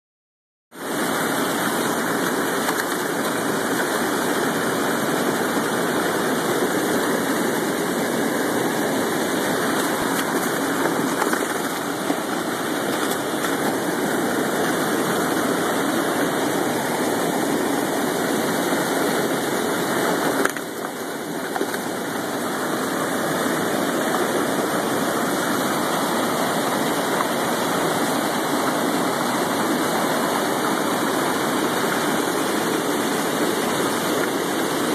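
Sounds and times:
water rushing over a dam: 0.8s - 34.9s.

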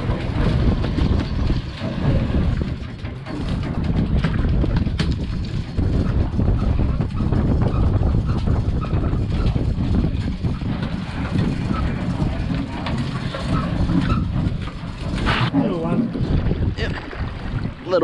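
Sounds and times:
boat engine running: 0.0s - 18.0s
wind buffeting microphone: 0.0s - 18.0s.

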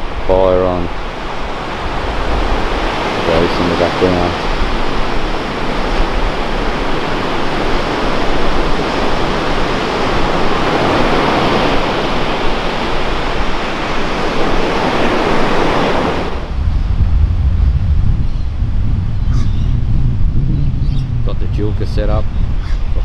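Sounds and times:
ocean surf breaking: 0.0s - 19.2s, 21.1s - 23.0s.

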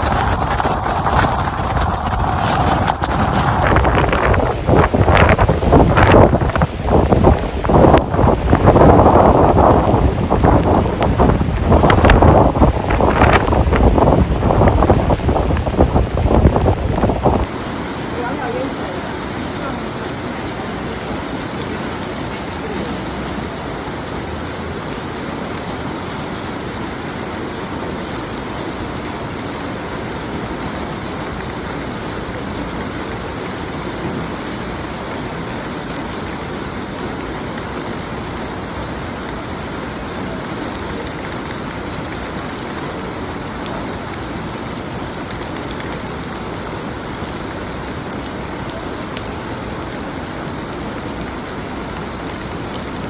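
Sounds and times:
heavy rain on flooded street: 0.0s - 53.0s.

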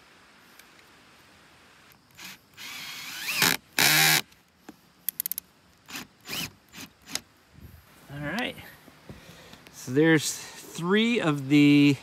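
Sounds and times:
cordless drill motor whine: 2.1s - 4.2s, 5.9s - 7.2s.

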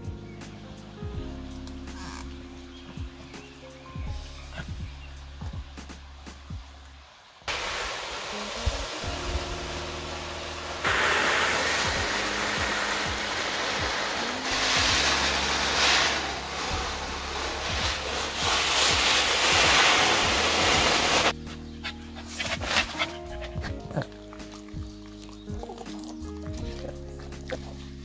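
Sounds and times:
soft background music: 0.0s - 7.1s, 7.8s - 28.0s
water running and splashing: 6.4s - 21.4s, 22.4s - 28.0s.

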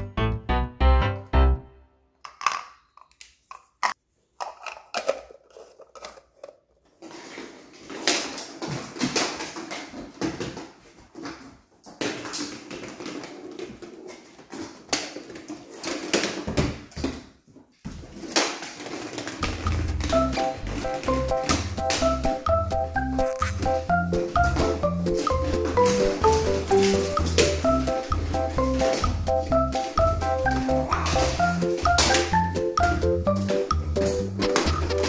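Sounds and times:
plastic balls snapping shut: 2.2s - 6.6s
balls rolling on tile floor: 2.2s - 35.0s.

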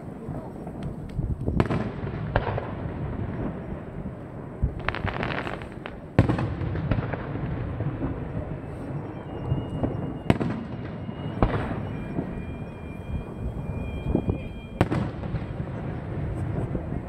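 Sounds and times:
firework booms: 0.0s - 17.0s
steady low rumble: 0.0s - 17.0s
crackle of small firework pops: 0.6s - 2.7s, 4.8s - 8.3s.

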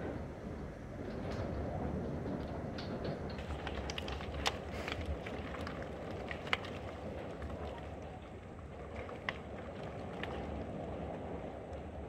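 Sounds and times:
hail pellets ticking: 2.3s - 7.8s.

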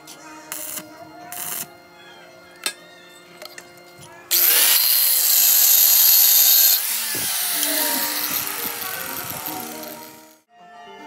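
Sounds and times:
angle grinder grinding steel: 3.4s - 10.5s.

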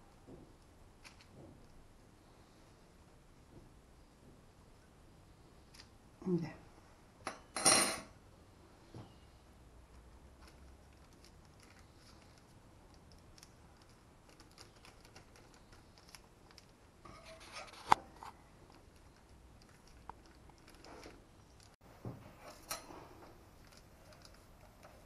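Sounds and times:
pastry rustling and tapping: 0.0s - 1.9s.

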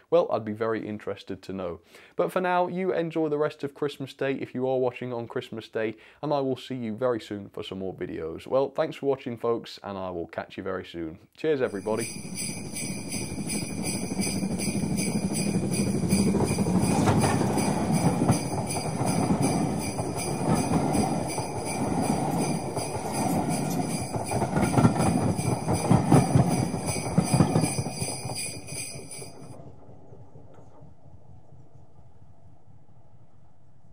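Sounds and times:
jingle bells shaking: 11.7s - 29.6s
low rumbling noise: 27.9s - 33.9s.

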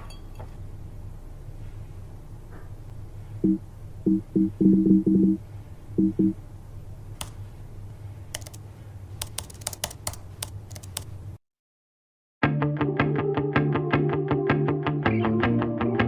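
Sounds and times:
low hum: 0.0s - 9.1s
sharp clicks: 8.3s - 8.6s, 9.2s - 11.1s.

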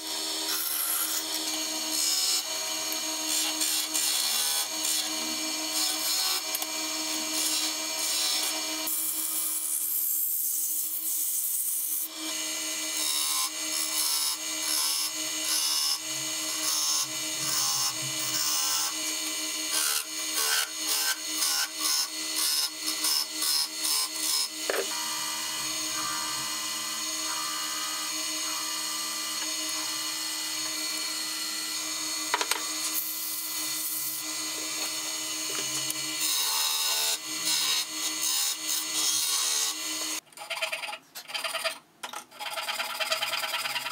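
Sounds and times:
wood lathe running: 0.0s - 40.2s
tool rubbing spinning wood: 13.3s - 36.3s.

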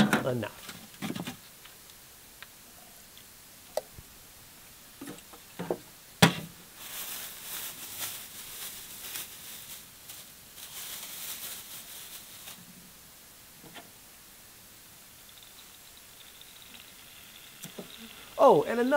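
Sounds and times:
plastic bag crinkling: 6.7s - 12.7s.

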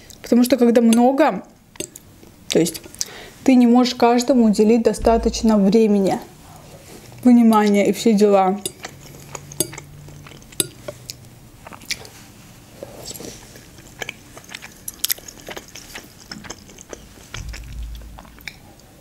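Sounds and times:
close chewing with mouth clicks: 0.9s - 3.1s, 8.6s - 19.0s
short low rumble: 5.0s - 5.9s, 17.4s - 18.4s.

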